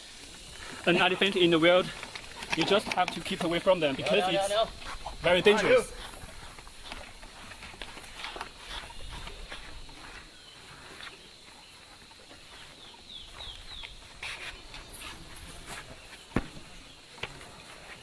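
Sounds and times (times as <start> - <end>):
faint outdoor background noise: 0.0 - 18.0
bird chirping: 8.2 - 17.7.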